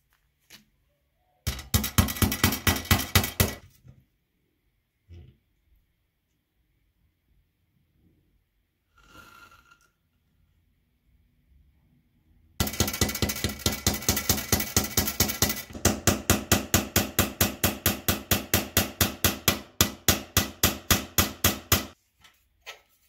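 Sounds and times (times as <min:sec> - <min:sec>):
hammer tapping on metal: 0:01.5 - 0:03.6, 0:12.6 - 0:22.0.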